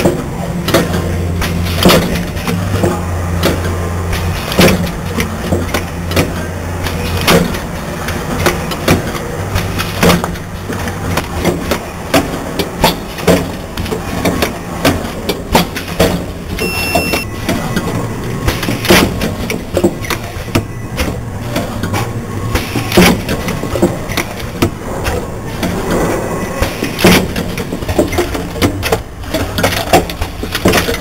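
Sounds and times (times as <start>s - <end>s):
machine clacks and knocks: 0.0s - 16.4s, 26.6s - 31.0s
low machine hum: 0.0s - 31.0s
short electronic beep: 16.6s - 17.7s.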